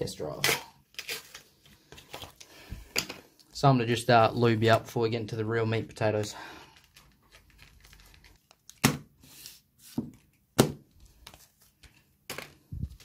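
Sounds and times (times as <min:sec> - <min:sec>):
foil packets rustling: 0:06.4 - 0:08.8.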